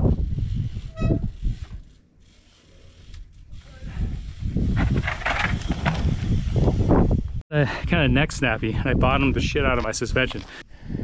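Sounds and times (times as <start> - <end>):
bicycle freehub clicking: 0.1 - 6.5
tyres rolling over rock: 4.7 - 6.4.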